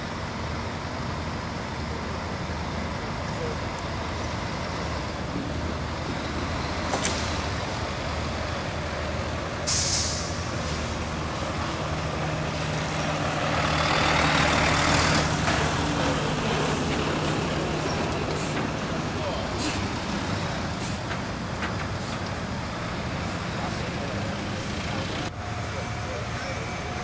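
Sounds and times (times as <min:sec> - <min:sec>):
lorry diesel engine running: 0:00.0 - 0:27.0
air brakes hissing: 0:09.6 - 0:11.0, 0:18.2 - 0:18.7, 0:19.6 - 0:21.2.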